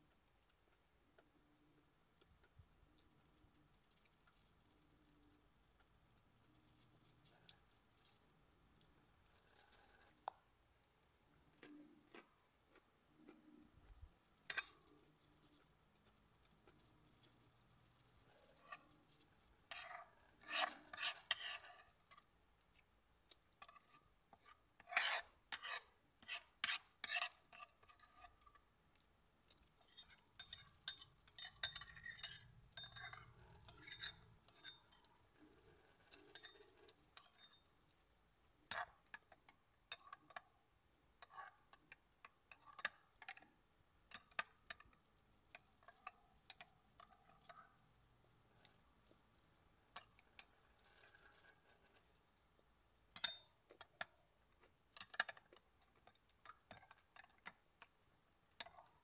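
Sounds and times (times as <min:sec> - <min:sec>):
spoon stirring in glass jar: 0:14.4 - 0:22.3, 0:23.3 - 0:38.0, 0:38.6 - 0:40.4, 0:44.1 - 0:52.2, 0:53.1 - 0:58.0
spoon scraping ceramic bowl: 0:19.7 - 0:22.2, 0:23.6 - 0:28.6, 0:29.8 - 0:37.7.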